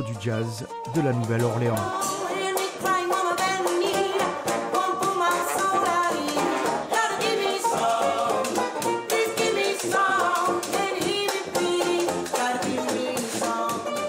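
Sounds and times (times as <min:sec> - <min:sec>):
trumpet: 0:00.0 - 0:09.5
banjo: 0:00.0 - 0:14.0
woman singing: 0:01.6 - 0:08.2, 0:08.9 - 0:14.0
trombone: 0:03.4 - 0:09.2.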